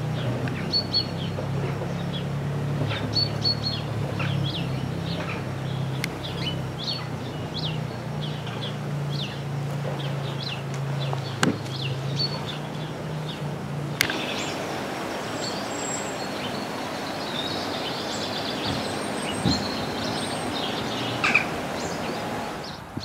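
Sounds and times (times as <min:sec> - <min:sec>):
birds chirping: 0:00.0 - 0:23.0
steady hiss: 0:07.8 - 0:23.0
click: 0:14.0 - 0:14.3
bumblebee buzzing: 0:14.0 - 0:22.8.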